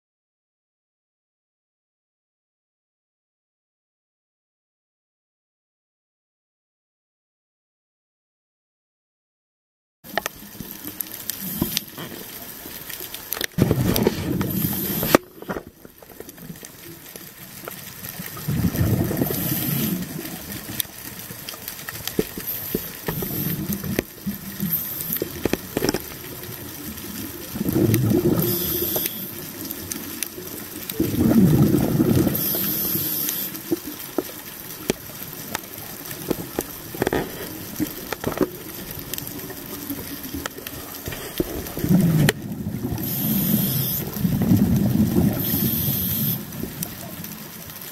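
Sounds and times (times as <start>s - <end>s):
exhaled bubbles gurgling: 10.1s - 47.9s
regulator hissing: 24.6s - 25.4s, 28.4s - 29.5s, 32.3s - 33.8s, 43.0s - 44.2s, 45.4s - 46.6s.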